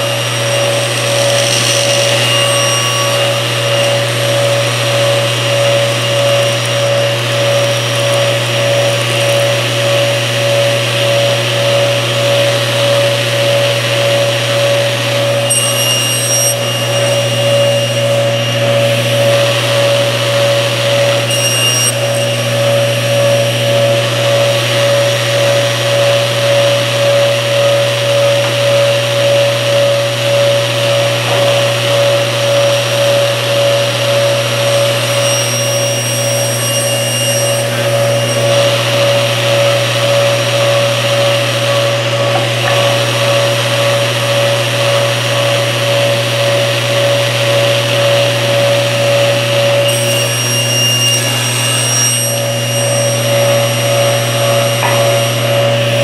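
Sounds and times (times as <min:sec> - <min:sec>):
saw blade cutting wood: 0:00.0 - 0:09.1, 0:14.2 - 0:25.6, 0:30.9 - 0:40.9, 0:49.6 - 0:56.0
table saw running: 0:00.0 - 0:56.0.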